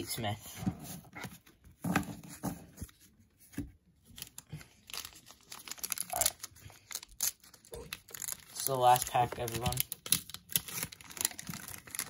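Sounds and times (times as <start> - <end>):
paper wrapper crinkling and tearing: 4.0 - 12.0.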